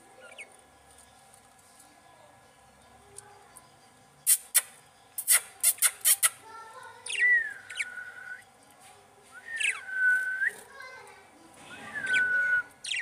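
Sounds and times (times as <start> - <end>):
budgerigars chirping and whistling: 0.2 - 0.5, 7.0 - 8.4, 9.5 - 10.6, 11.6 - 13.0.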